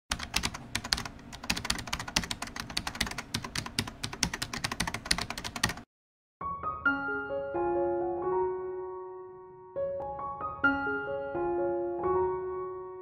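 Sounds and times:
keyboard typing: 0.1 - 5.9.

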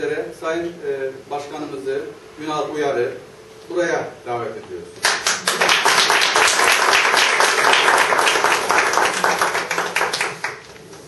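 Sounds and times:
small group clapping: 5.0 - 10.8.

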